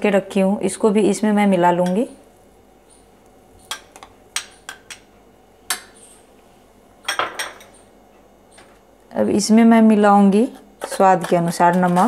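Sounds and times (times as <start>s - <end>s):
spoon scraping: 10.4s - 12.0s.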